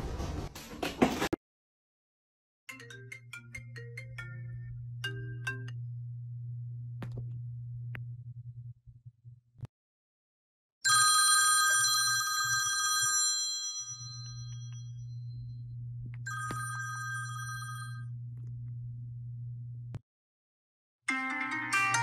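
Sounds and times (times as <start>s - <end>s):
low steady hum: 3.5s - 9.7s, 14.3s - 20.0s
phone alarm bell tone: 10.9s - 15.2s, 16.3s - 18.1s.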